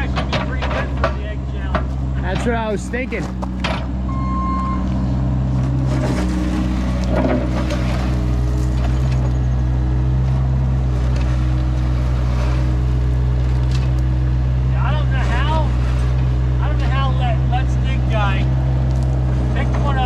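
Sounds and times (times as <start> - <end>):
excavator diesel engine running: 0.0 - 20.0
hydraulics working: 0.0 - 20.0
bucket scraping gravel: 5.8 - 9.3, 15.1 - 17.0.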